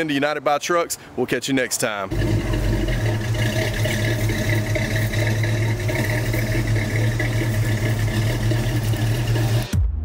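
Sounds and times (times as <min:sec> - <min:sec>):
pickup truck engine running: 0:02.1 - 0:09.8.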